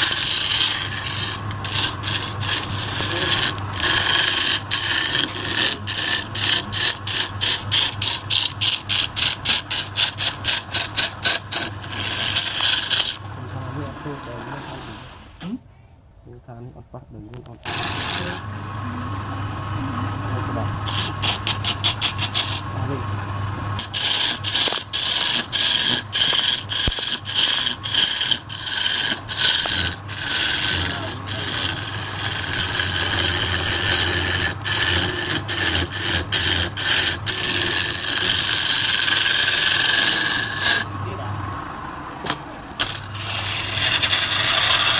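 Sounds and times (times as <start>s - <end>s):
hand tool scraping wood on lathe: 0.0s - 13.3s, 17.6s - 18.4s, 20.8s - 22.7s, 23.8s - 40.9s, 42.3s - 44.9s
lathe humming: 0.0s - 15.1s, 17.6s - 44.9s.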